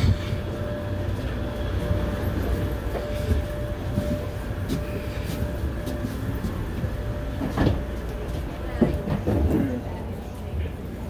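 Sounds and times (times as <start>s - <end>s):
rumble of passengers walking: 0.0s - 11.0s.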